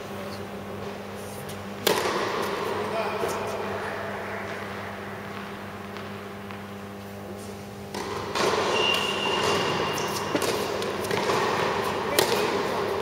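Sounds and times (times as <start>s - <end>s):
steady hum in large hall: 0.0s - 13.0s
racket striking tennis ball: 1.8s - 2.7s, 7.9s - 13.0s.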